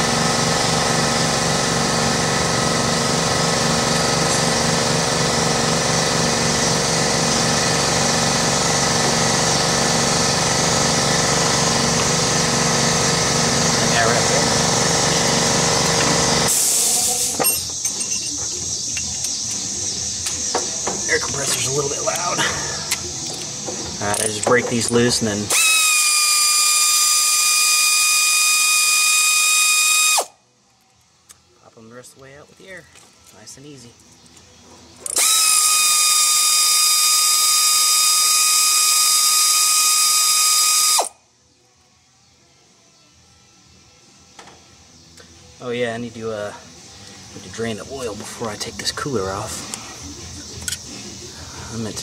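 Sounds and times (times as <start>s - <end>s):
air compressor motor running: 0.0s - 30.4s, 35.0s - 41.2s
air hiss: 16.4s - 17.4s
metallic clinks of hand tools: 17.4s - 19.6s, 21.4s - 25.1s.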